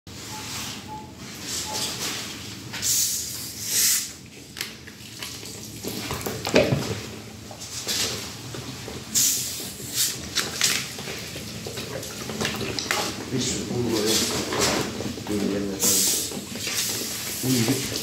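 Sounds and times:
short hisses: 0:02.8 - 0:04.1.

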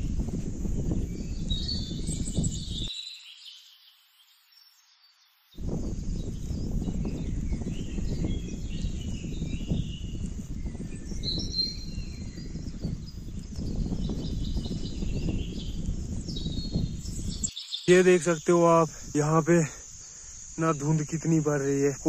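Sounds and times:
wind buffeting microphone: 0:00.0 - 0:02.9, 0:05.6 - 0:17.5
small birds chirping: 0:00.0 - 0:22.0.

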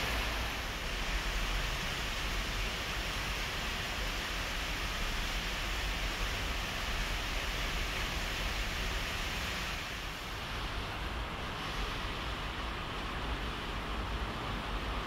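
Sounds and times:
low unsteady rumble: 0:00.0 - 0:03.3
steady rushing noise: 0:00.0 - 0:15.0.

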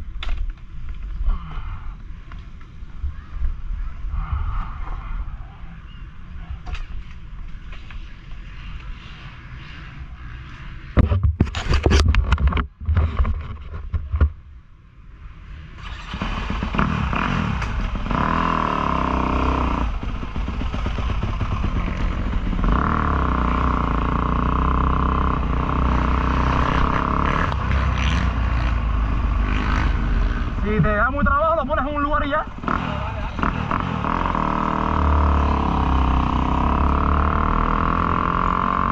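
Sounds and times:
dirt bike engine revving: 0:15.8 - 0:38.9.

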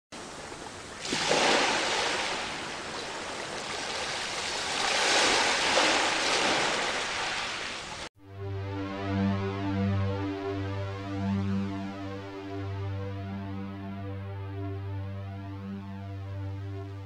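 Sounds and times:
waves washing onto beach: 0:00.2 - 0:08.1.

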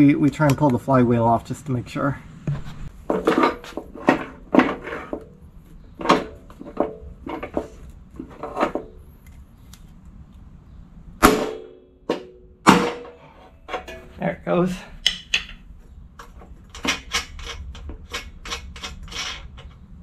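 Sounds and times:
metal tools clanking: 0:12.1 - 0:14.3, 0:16.2 - 0:19.9.

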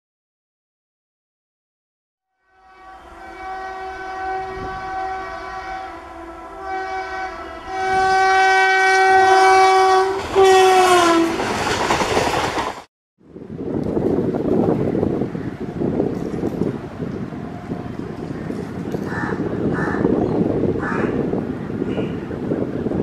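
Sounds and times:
train air horn blast: 0:02.3 - 0:11.4
train coaches rushing by: 0:03.1 - 0:12.9, 0:13.6 - 0:23.0.

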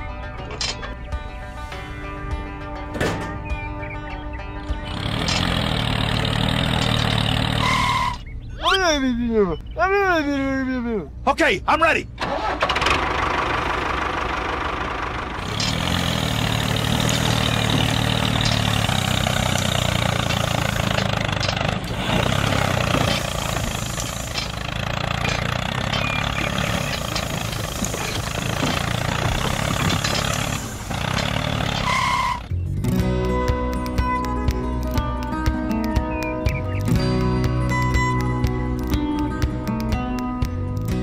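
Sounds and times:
tractor engine chugging: 0:04.8 - 0:08.5, 0:12.1 - 0:40.1.

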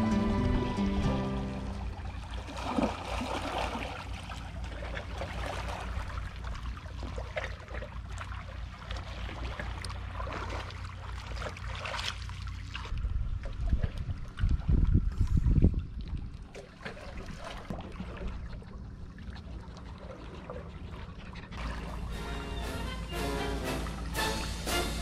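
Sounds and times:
low rumble: 0:00.0 - 0:02.5, 0:20.8 - 0:25.0
water lapping on rocks: 0:01.9 - 0:22.2.

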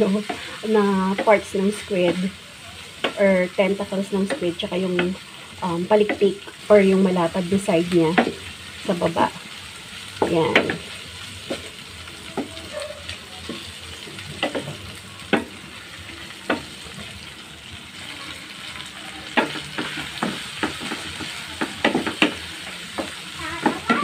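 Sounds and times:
food sizzling in a pan: 0:00.0 - 0:24.0.

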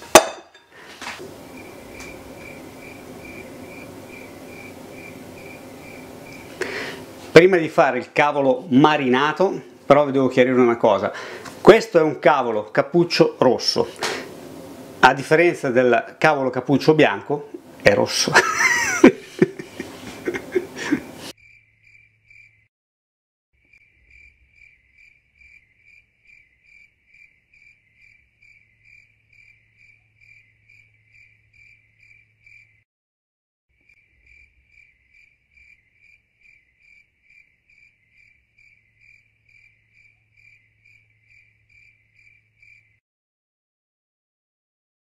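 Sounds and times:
cricket chirping: 0:01.2 - 0:07.0, 0:21.4 - 0:22.7, 0:23.6 - 0:32.8, 0:33.8 - 0:43.0.

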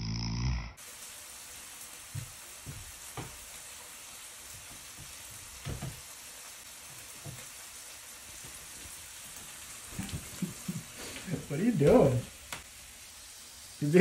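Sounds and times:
steady background hiss: 0:08.8 - 0:14.0.

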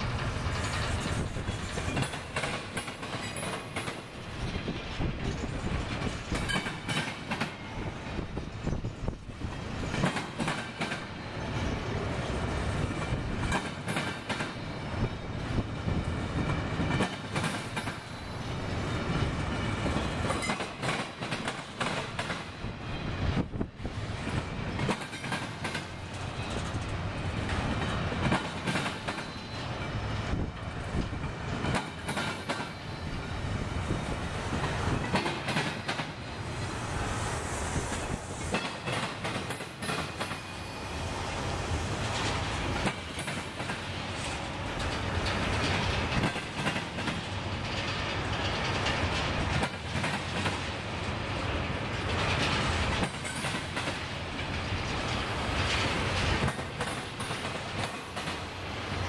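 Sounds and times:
train wheels clacking on rails: 0:00.0 - 0:59.0
faint high wheel squeal: 0:29.2 - 0:30.1, 0:32.7 - 0:33.4, 0:40.4 - 0:41.2.

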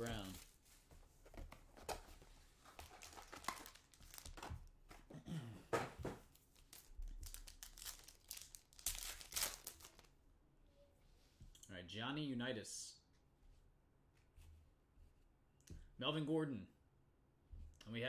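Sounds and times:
foil wrappers crinkling and tearing: 0:02.8 - 0:04.4, 0:06.5 - 0:10.1.

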